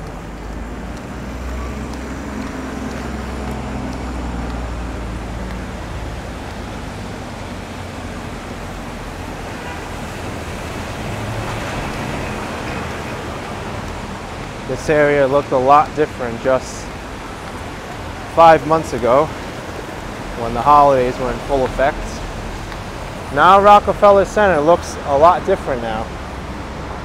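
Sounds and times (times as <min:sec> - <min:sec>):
passing vehicles: 0:00.0 - 0:27.0.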